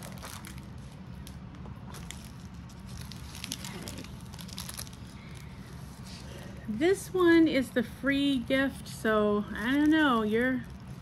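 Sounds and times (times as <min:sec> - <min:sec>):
plastic packaging crinkling: 0:00.0 - 0:06.3, 0:09.5 - 0:11.0
low steady hum: 0:00.0 - 0:11.0.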